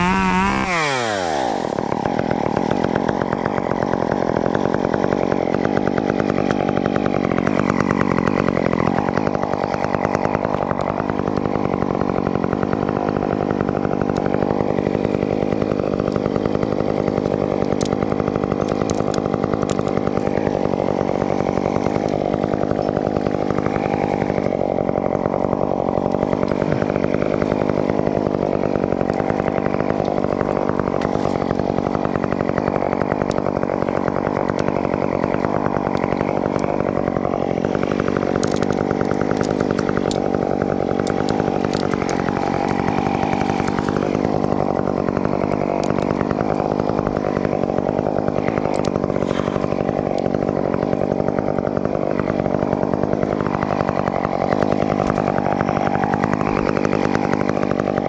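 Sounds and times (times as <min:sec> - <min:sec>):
chainsaw running: 0:00.0 - 0:58.0.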